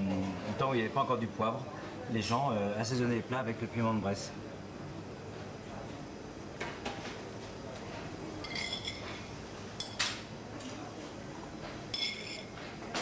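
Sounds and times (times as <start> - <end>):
steady background hum: 0.0 - 13.0
metal utensils clinking on bowls: 8.4 - 10.2, 11.9 - 13.0.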